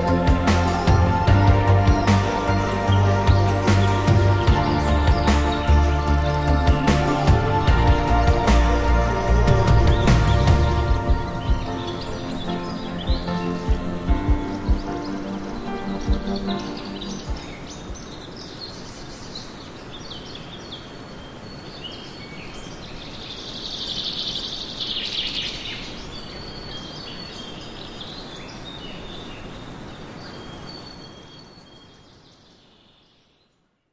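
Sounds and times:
outdoor background hiss: 0:00.0 - 0:33.9
small birds singing: 0:00.0 - 0:33.9.

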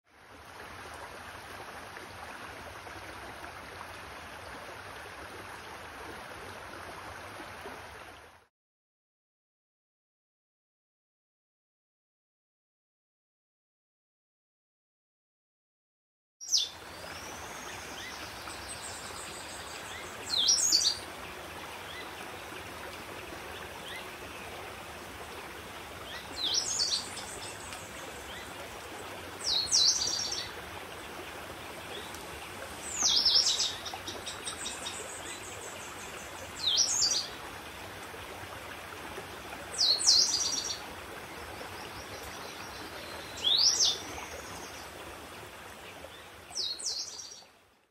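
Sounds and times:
small stream rushing: 0:00.1 - 0:08.5, 0:16.4 - 0:47.9
forest bird calling: 0:16.4 - 0:16.8, 0:17.5 - 0:21.0, 0:26.0 - 0:28.6, 0:29.4 - 0:30.5, 0:43.2 - 0:44.6.

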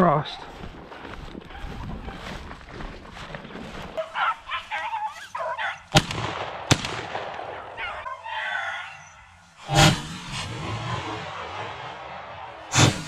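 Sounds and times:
dogs baying: 0:00.5 - 0:02.4, 0:03.9 - 0:06.0, 0:07.5 - 0:09.4.

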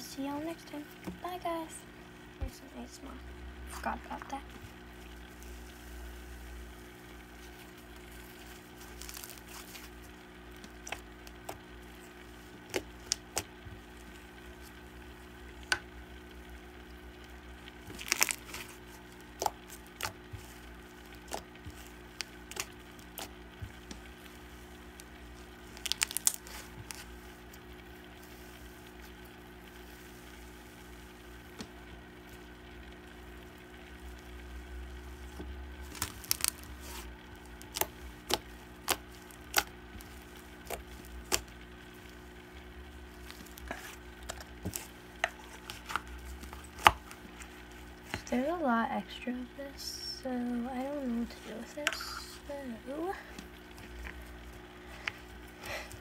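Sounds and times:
steady low hum: 0:00.0 - 0:56.0
slime popping and crackling: 0:07.2 - 0:48.3.

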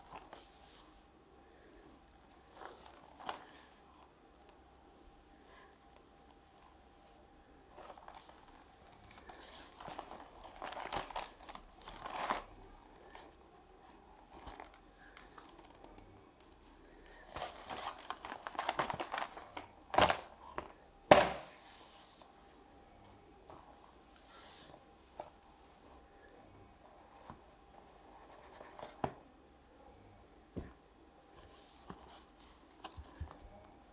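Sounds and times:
paper and cardboard rustling: 0:07.8 - 0:12.5, 0:17.3 - 0:20.7.

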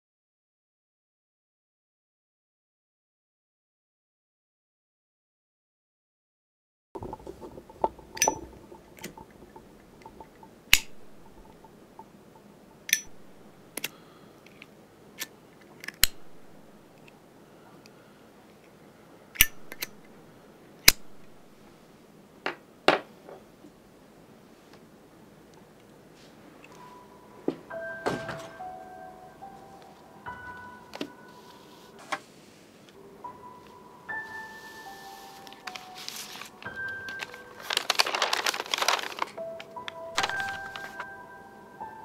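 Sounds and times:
lighter lid clicking: 0:19.4 - 0:19.9.

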